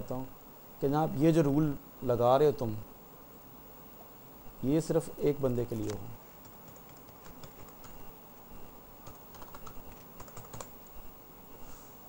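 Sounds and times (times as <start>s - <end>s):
faint computer keyboard typing: 5.7s - 11.1s.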